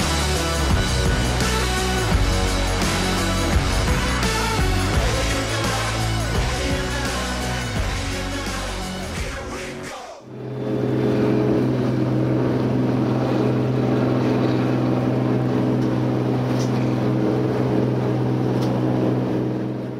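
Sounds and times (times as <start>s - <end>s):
boat engine droning: 0.0s - 9.7s, 10.3s - 19.9s
music: 0.0s - 10.3s.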